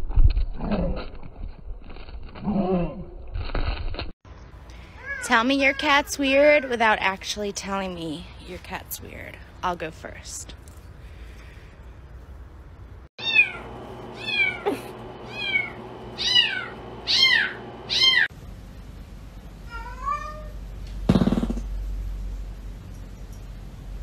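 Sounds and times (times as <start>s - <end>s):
cat meowing: 13.2s - 13.6s, 14.2s - 18.3s, 19.7s - 20.6s
kitten meowing: 14.2s - 18.3s.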